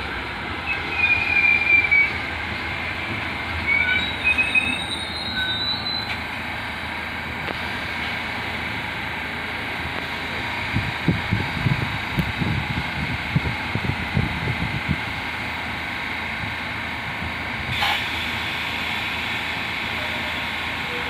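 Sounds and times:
subway train rumbling: 0.0 - 21.0
wheels squealing: 0.5 - 6.5.

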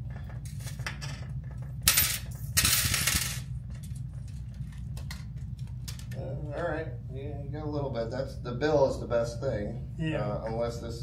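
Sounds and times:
low steady hum: 0.0 - 11.0
coins clinking on glass: 1.8 - 3.4.

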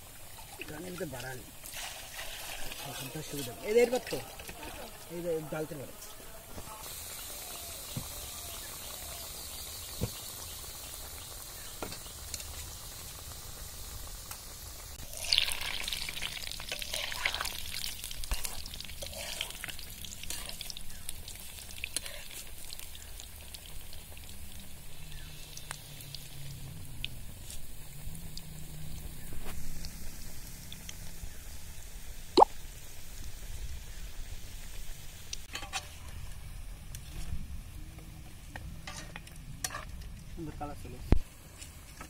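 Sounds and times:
fritters sizzling in hot oil: 0.0 - 42.0
metal spatula scraping a pan: 18.2 - 20.6, 35.5 - 36.0.

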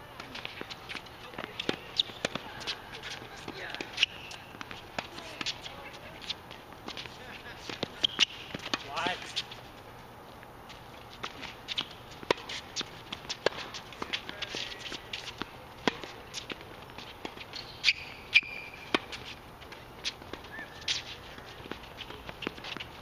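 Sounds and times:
tennis ball bouncing: 0.2 - 9.6, 10.7 - 23.0
racket striking tennis ball: 0.3 - 5.6, 11.2 - 19.4.

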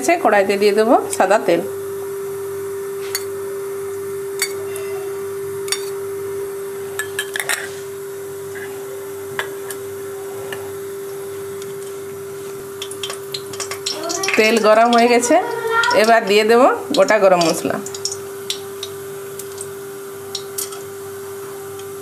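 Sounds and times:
metal spoon clinking against pan: 12.8 - 15.1, 20.3 - 20.9.

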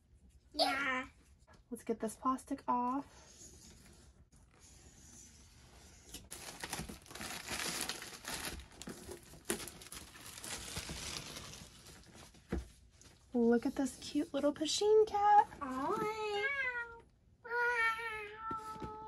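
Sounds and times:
plastic shrink wrap tearing: 6.1 - 12.2.

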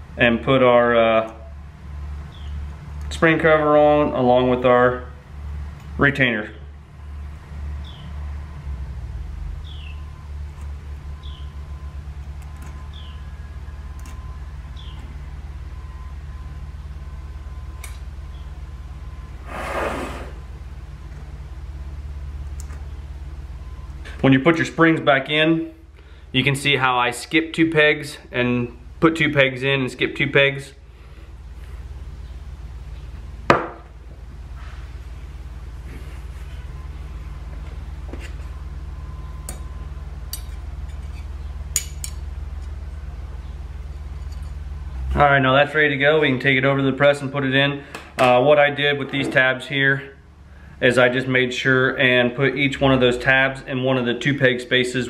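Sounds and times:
steady low hum: 0.0 - 55.0
loud breathing: 19.4 - 20.5
metal parts clinking: 43.9 - 44.6.

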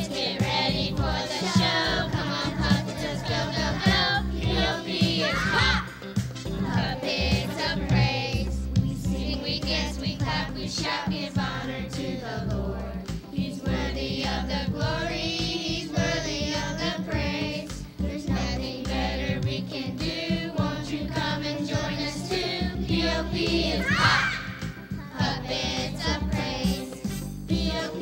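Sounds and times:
band playing steady beat: 0.0 - 28.0
voices singing: 0.0 - 28.0.

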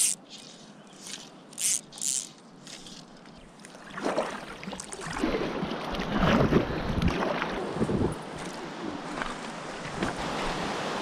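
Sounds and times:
paddle splashing water: 0.0 - 11.0
wind rumbling on microphone: 5.1 - 11.0.

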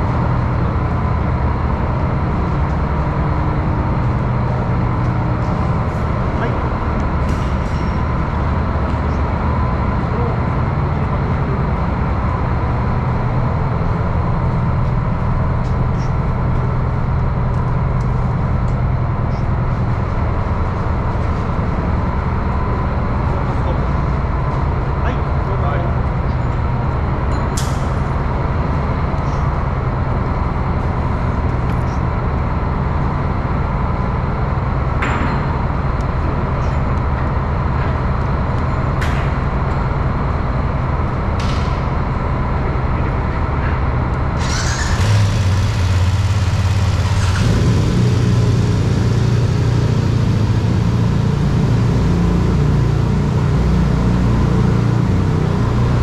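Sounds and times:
deeper engine note: 0.0 - 56.0
low engine drone: 0.0 - 56.0.

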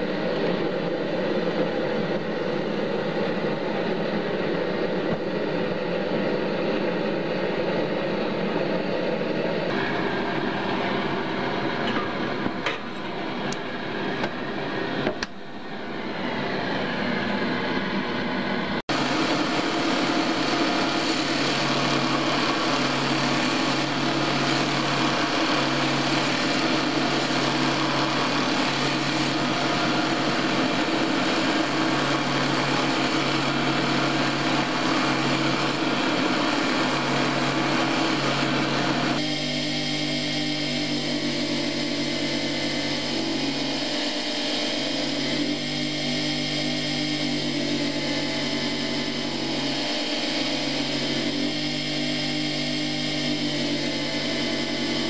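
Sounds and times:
low steady motor hum: 0.0 - 55.0
belt grinder grinding steel: 18.9 - 55.0.

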